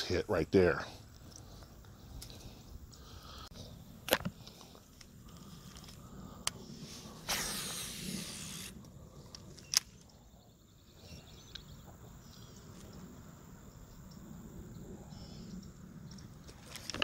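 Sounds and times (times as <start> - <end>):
line hissing off reel: 6.8 - 8.9.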